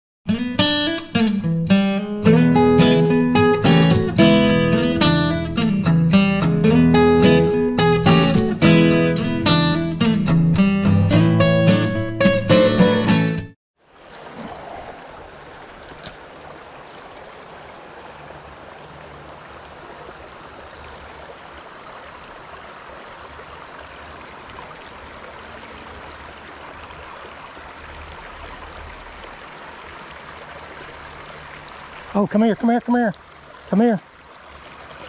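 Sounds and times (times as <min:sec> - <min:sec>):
stream water over rocks: 0:13.8 - 0:35.0.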